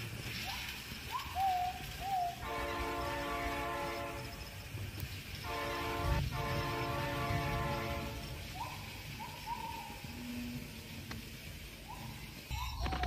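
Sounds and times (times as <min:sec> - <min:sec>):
whistle-like chirps: 0:00.4 - 0:02.4
buzzy toy train horn: 0:02.3 - 0:04.7, 0:05.4 - 0:08.6.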